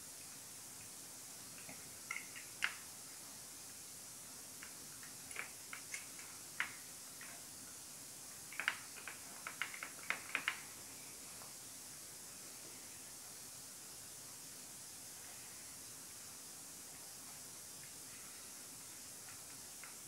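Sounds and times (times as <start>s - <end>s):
faint steady hiss: 0.0s - 20.0s.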